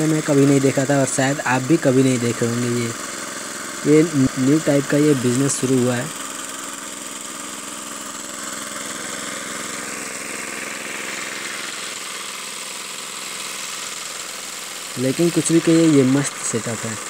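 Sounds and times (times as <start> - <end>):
small petrol engine running: 0.0 - 17.0.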